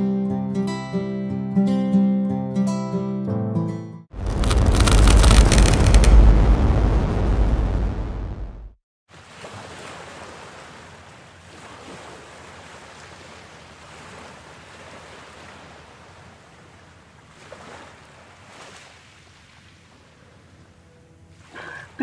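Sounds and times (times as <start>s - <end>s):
steady rushing ambience noise: 4.2s - 8.7s.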